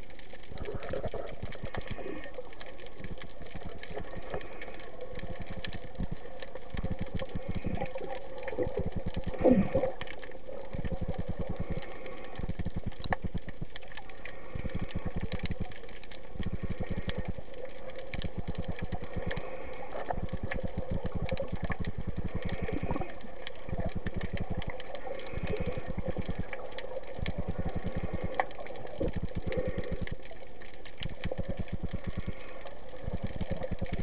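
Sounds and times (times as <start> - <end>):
steady underwater hum: 0.0 - 34.0.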